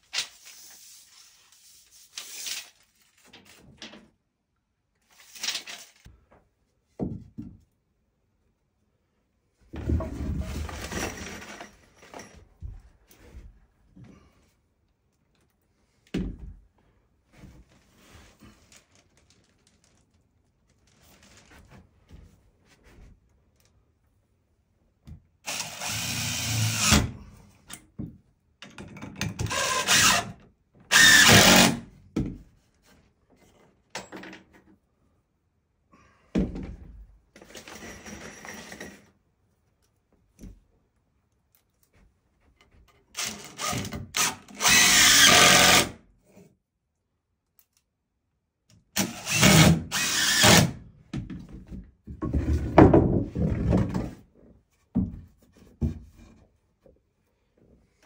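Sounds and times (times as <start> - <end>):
drill driving screws into wood: 25.4 - 27.2, 29.4 - 31.9, 43.2 - 46.0, 49.0 - 50.8.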